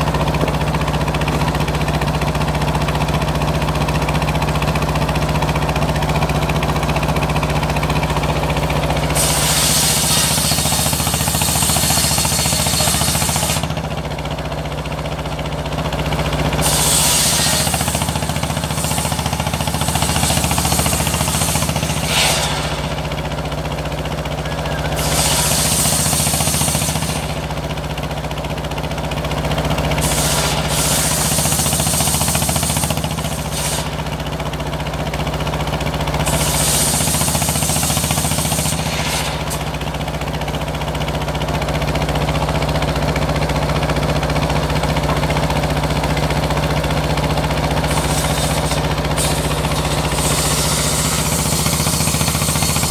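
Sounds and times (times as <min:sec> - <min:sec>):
saw blade hissing through wood: 0:08.8 - 0:13.9, 0:16.5 - 0:23.6, 0:24.4 - 0:27.7, 0:29.9 - 0:34.2, 0:36.2 - 0:40.2, 0:47.5 - 0:52.9
low engine hum: 0:17.4 - 0:28.5.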